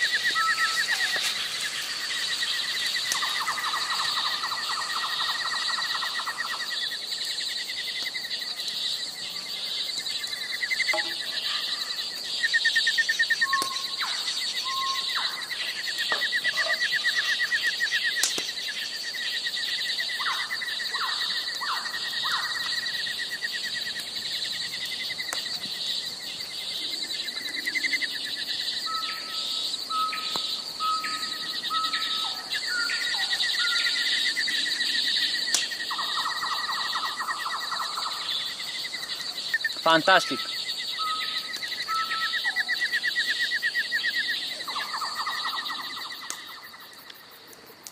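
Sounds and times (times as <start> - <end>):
crickets trilling: 0.0 - 47.9.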